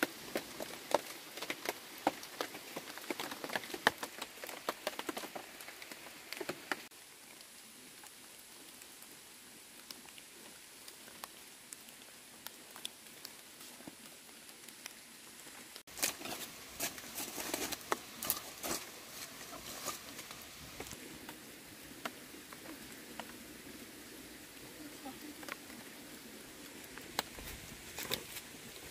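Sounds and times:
campfire crackling and popping: 0:00.0 - 0:28.9.

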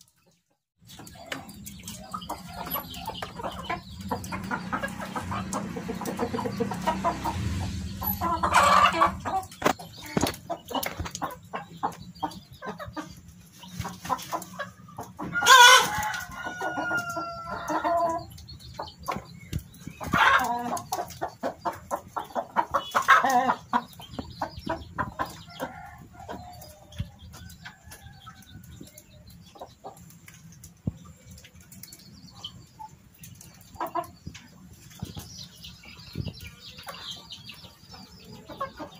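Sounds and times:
chickens clucking: 0:00.0 - 0:38.9
rooster crowing: 0:15.3 - 0:18.1.

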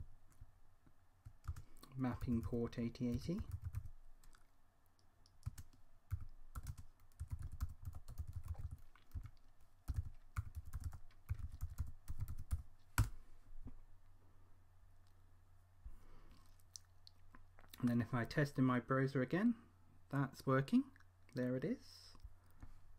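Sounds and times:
computer keyboard typing: 0:01.2 - 0:04.4, 0:05.4 - 0:13.1.

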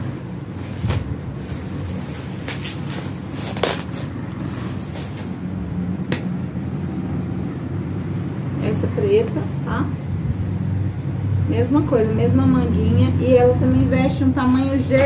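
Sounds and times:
short crinkles: 0:00.0 - 0:05.4
knit garment rustling: 0:00.0 - 0:05.5, 0:14.4 - 0:15.0
steady low hum: 0:00.0 - 0:15.0.

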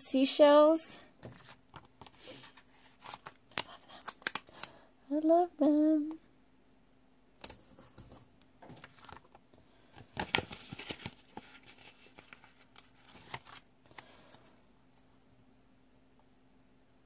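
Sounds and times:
paper sticker sheets rustling: 0:01.2 - 0:04.7, 0:07.4 - 0:14.6.

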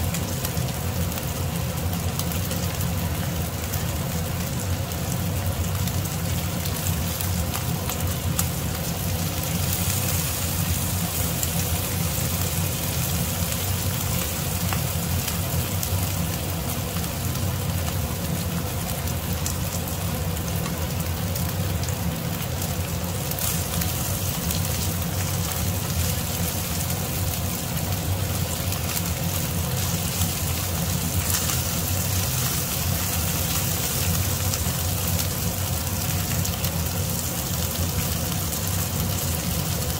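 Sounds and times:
meat sizzling in a frying pan: 0:00.0 - 0:39.9.

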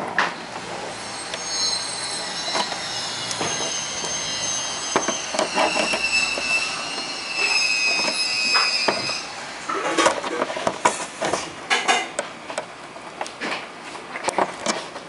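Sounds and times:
metal scraping squeal: 0:00.3 - 0:10.1.

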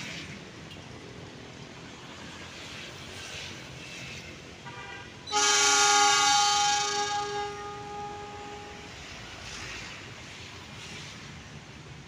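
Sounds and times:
train horn blast: 0:04.7 - 0:09.1.

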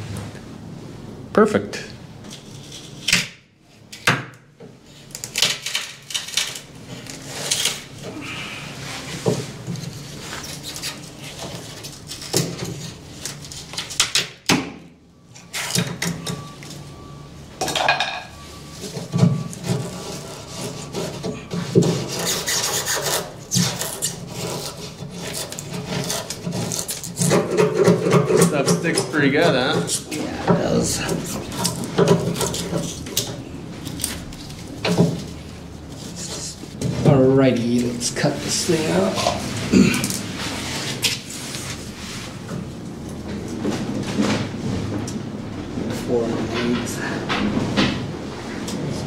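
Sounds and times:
blade scraping foam: 0:19.7 - 0:27.8.

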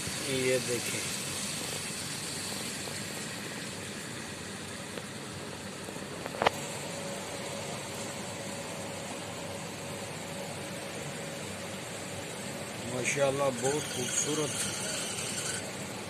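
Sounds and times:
rain hissing: 0:00.0 - 0:08.6.

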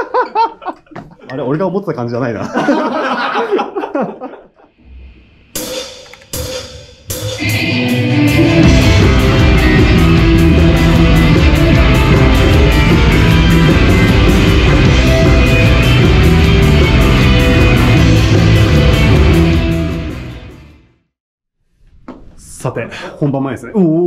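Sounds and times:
drum and cymbal hits: 0:05.5 - 0:20.3
rock band playing: 0:06.1 - 0:20.8.

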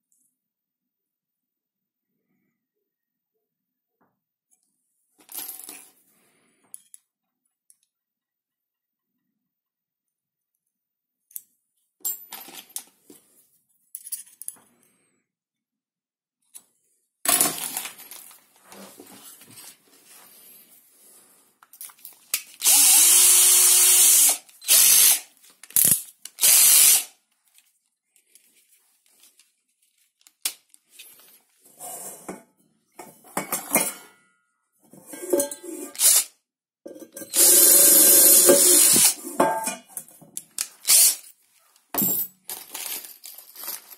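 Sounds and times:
cordless drill drilling metal: 0:22.6 - 0:27.1, 0:36.0 - 0:36.3, 0:37.3 - 0:39.3, 0:40.8 - 0:41.2.

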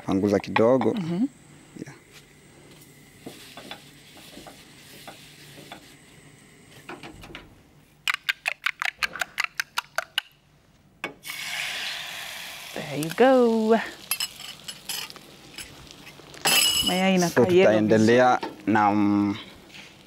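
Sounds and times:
eggs sizzling in frying pan: 0:00.6 - 0:07.1, 0:11.1 - 0:20.0.

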